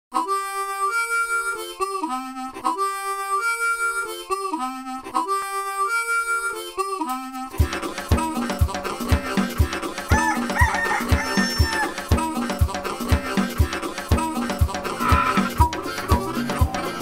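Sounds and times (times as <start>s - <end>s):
drum beat with backing: 7.6s - 17.0s.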